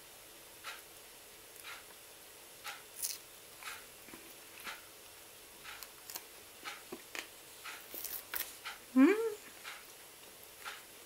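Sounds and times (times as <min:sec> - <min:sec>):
soft ticking: 0:01.6 - 0:02.0, 0:05.6 - 0:06.0, 0:10.5 - 0:10.9.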